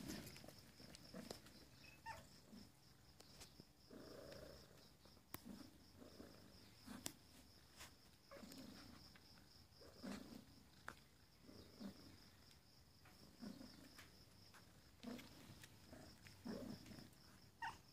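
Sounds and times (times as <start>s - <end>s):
cat purring: 3.8s - 7.2s, 8.3s - 17.8s.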